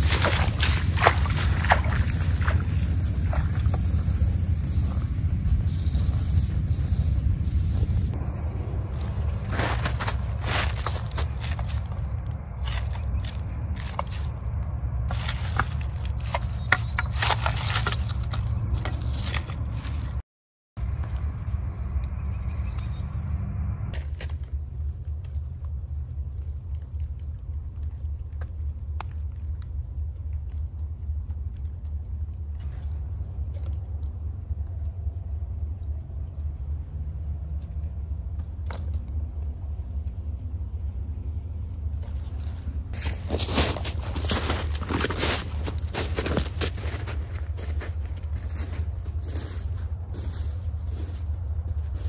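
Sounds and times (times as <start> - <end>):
steady low rumble: 0.0 - 20.2, 20.8 - 52.0
stick scraping in snow and leaves: 0.0 - 20.2, 42.0 - 52.0.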